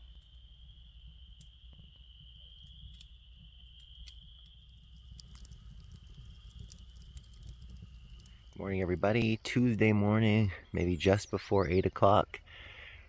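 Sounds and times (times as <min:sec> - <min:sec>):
low rumble: 0:00.0 - 0:11.9
faint clicks: 0:02.6 - 0:09.4.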